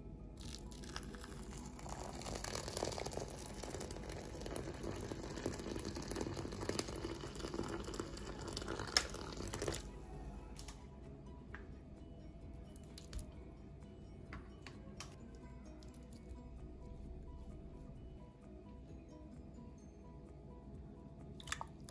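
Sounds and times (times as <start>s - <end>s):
water pouring onto lentils: 0.4s - 9.9s, 21.4s - 21.9s.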